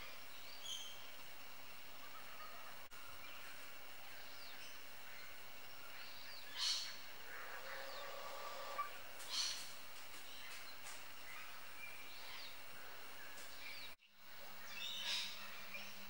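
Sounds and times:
harsh bird calls: 2.0s - 14.0s
faint rising chirps: 6.9s - 9.4s.

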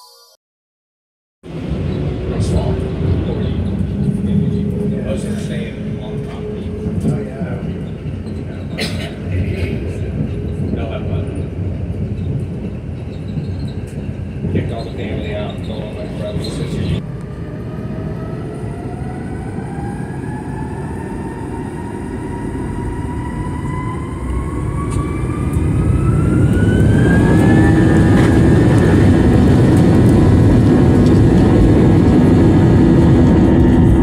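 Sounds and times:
jet engine rumble: 1.5s - 34.0s
jet engine whine rising: 14.6s - 34.0s.

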